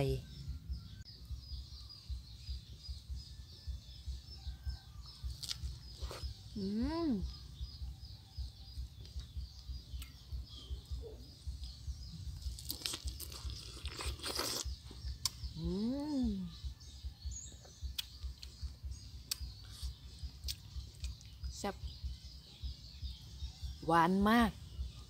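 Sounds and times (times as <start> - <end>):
chewing and crunching strawberry: 4.2 - 6.6, 7.2 - 22.6
person humming mmm: 15.6 - 16.5.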